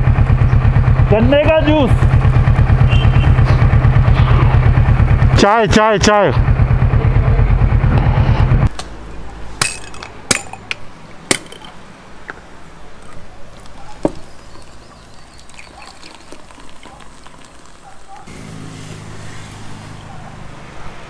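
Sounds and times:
motorcycle engine running: 0.0s - 8.7s
sharp clinks and knocks: 9.6s - 11.8s.

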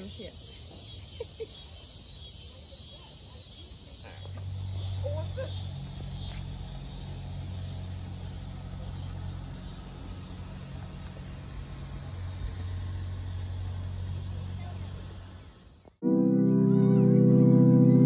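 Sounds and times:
crickets and insects chirping: 0.0s - 16.0s
steady low hum: 3.9s - 15.9s.

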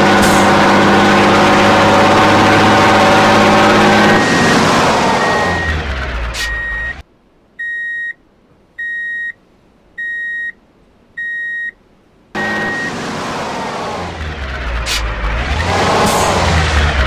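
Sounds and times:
loud truck engine: 0.0s - 7.0s, 12.4s - 17.0s
reversing alarm beeps: 5.2s - 5.8s, 6.4s - 7.0s, 7.6s - 8.2s, 12.4s - 12.9s.

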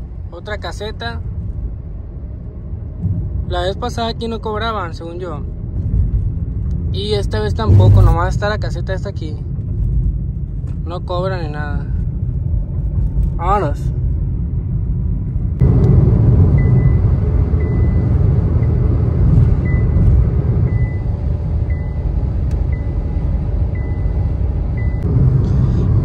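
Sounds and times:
car road and engine noise: 0.0s - 26.0s.

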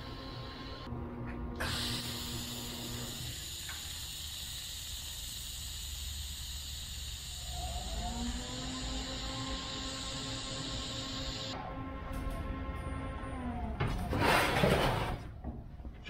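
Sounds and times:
welding arc hissing: 1.6s - 11.6s.

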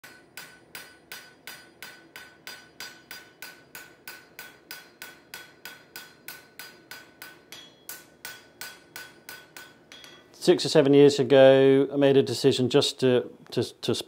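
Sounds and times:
hammer striking anvil: 0.0s - 10.4s.

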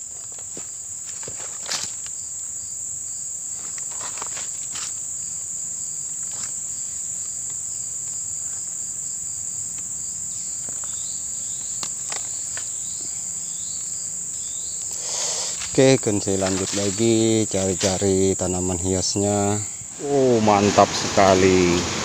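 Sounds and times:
insects buzzing: 0.0s - 22.0s
rustles of leaf litter: 3.4s - 7.5s, 14.5s - 22.0s.

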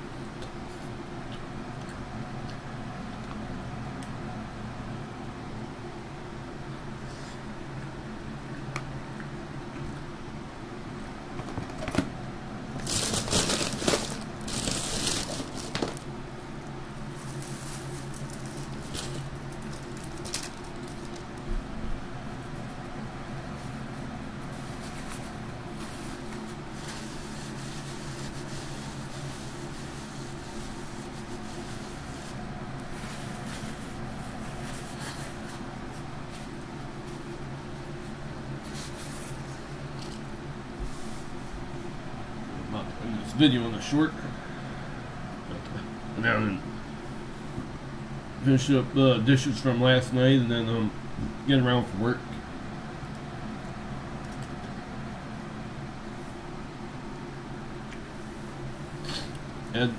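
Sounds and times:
steady low hum: 0.0s - 59.9s
paper napkin crumpling: 12.8s - 16.1s, 17.1s - 21.4s, 24.5s - 37.2s
plastic packaging crinkling: 12.8s - 16.1s, 17.2s - 21.4s.

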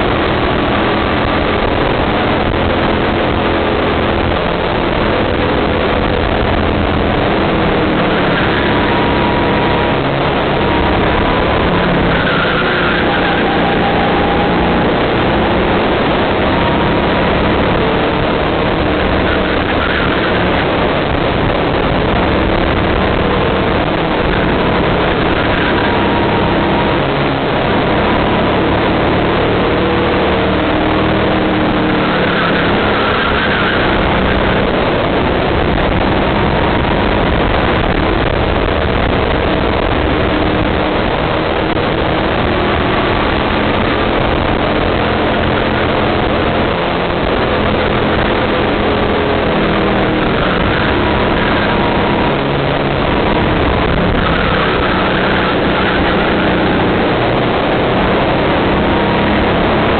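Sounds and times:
go-kart engine revving: 0.0s - 59.9s
wind on microphone: 0.0s - 59.9s.

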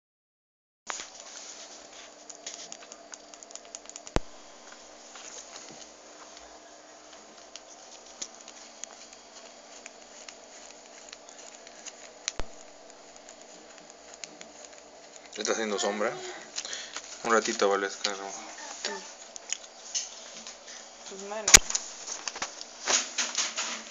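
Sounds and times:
small clicks and scratching: 0.9s - 4.2s, 7.4s - 15.5s
sharp clicks: 2.3s - 4.3s.

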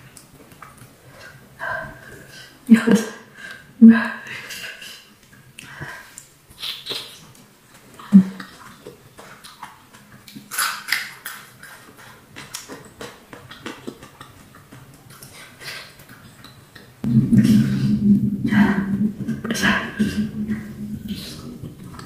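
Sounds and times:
chewing with wet mouth clicks: 0.0s - 1.4s, 5.2s - 17.1s
biting into fried food: 6.6s - 17.0s
loud steady low hum: 17.0s - 22.0s.

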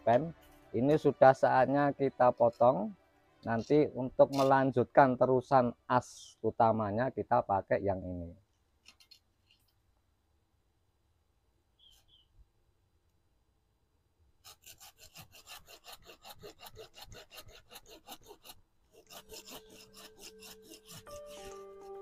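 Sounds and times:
background music: 0.0s - 7.2s, 19.1s - 22.0s
hand saw cutting wood: 14.4s - 22.0s.

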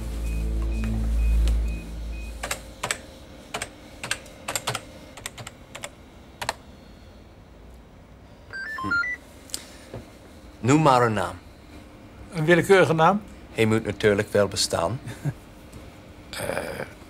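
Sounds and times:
low hum: 0.0s - 4.4s
short electronic beeps: 8.5s - 9.2s.

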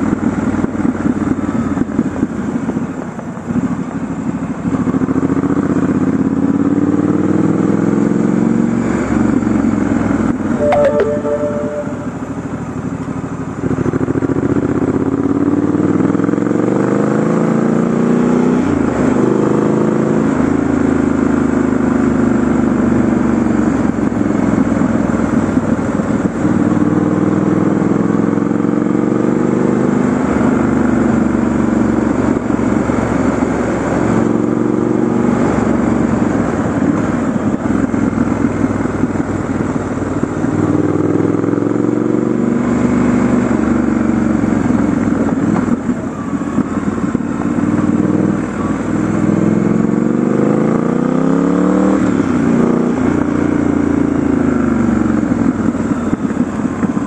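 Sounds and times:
wind and road noise: 0.0s - 10.6s, 12.2s - 57.0s
motorcycle engine accelerating: 13.8s - 57.0s.

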